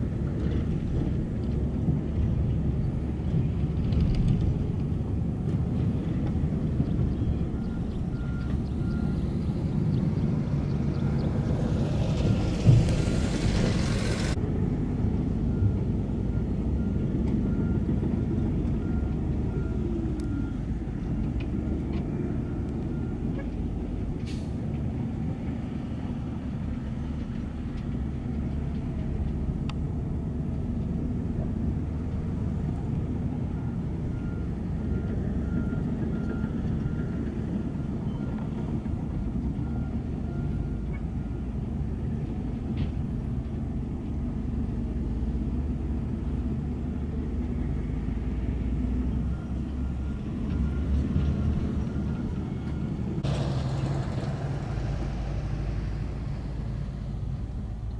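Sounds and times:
heavy diesel machinery running: 0.0 - 57.9
reversing alarm beeping: 7.3 - 9.7, 15.5 - 23.2, 49.2 - 53.2.

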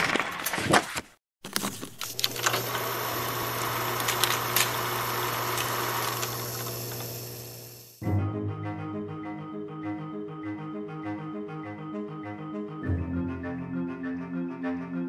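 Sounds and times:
film projector whirring: 1.5 - 8.0
music: 8.0 - 15.0.

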